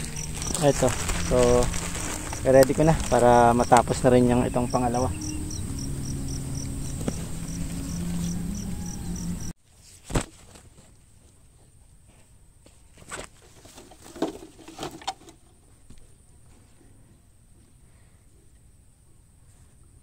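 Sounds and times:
insects chirping: 0.0s - 9.5s
low hum: 0.0s - 9.6s.

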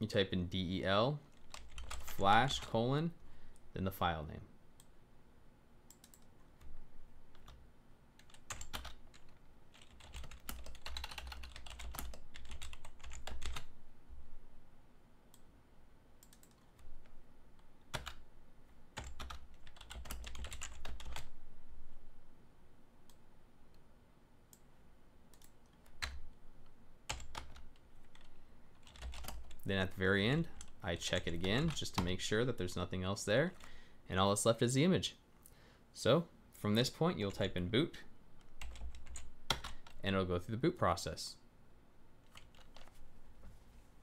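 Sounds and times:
computer keyboard typing: 1.3s - 2.7s, 5.9s - 6.7s, 8.2s - 13.7s, 16.2s - 17.2s, 17.9s - 18.2s, 19.0s - 21.3s, 27.1s - 29.6s, 38.5s - 40.0s, 42.2s - 43.0s.

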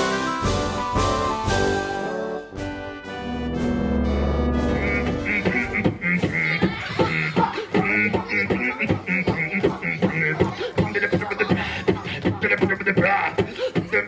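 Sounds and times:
beatboxing into a microphone: 4.8s - 14.0s.

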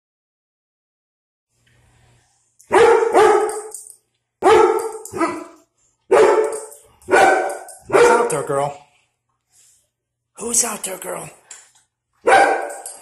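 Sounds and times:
dog barking loudly: 2.7s - 3.7s, 4.4s - 8.5s, 12.2s - 12.9s.

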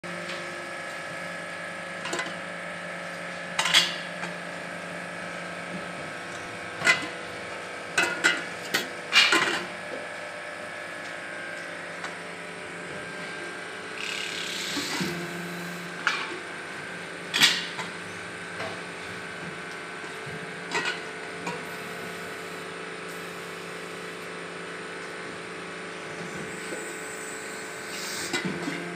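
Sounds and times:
hydraulic press humming: 11.1s - 24.0s.

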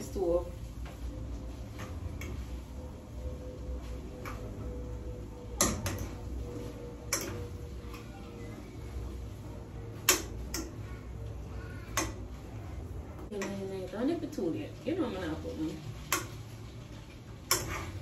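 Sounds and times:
steady low hum: 0.0s - 18.0s
utensils tapping cookware: 5.6s - 6.2s, 7.1s - 8.1s, 10.0s - 10.8s, 16.1s - 16.4s, 17.4s - 18.0s.

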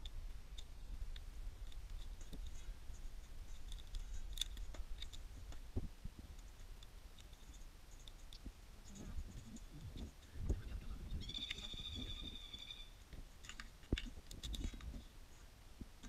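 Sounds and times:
crab shell cracking: 3.5s - 5.2s.

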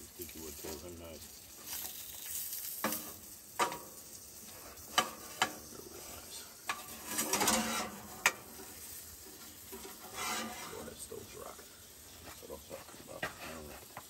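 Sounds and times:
meat sizzling in a frying pan: 0.0s - 14.0s
wooden spatula scraping a pan: 4.4s - 14.0s.

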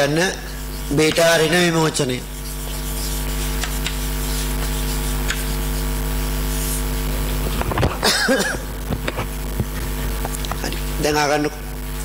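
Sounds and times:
electrical mains hum: 0.0s - 12.0s
chalk tap on blackboard: 0.9s - 1.4s, 2.7s - 5.6s.

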